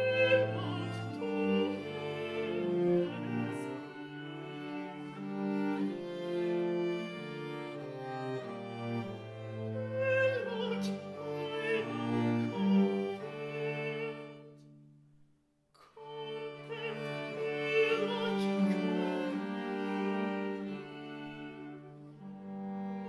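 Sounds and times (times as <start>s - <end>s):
person singing: 0.0s - 3.8s, 15.9s - 19.5s
viols playing slow music: 0.0s - 14.8s, 15.8s - 23.0s.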